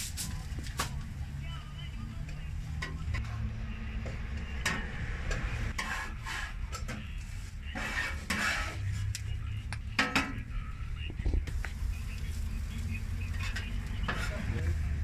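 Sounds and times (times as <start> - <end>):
metal spatula scraping griddle: 5.7 - 6.8, 7.7 - 9.1, 13.4 - 14.6.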